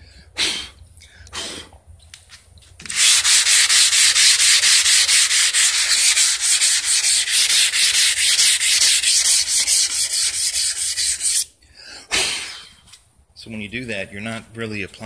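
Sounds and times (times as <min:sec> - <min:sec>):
sandpaper rubbing back and forth: 0:02.9 - 0:11.5.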